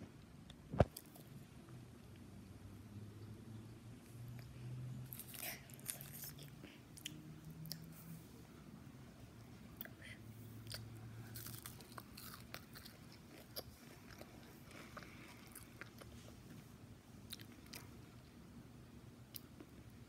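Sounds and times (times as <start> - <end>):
crunchy food chewing: 5.1 - 7.9, 10.6 - 16.6.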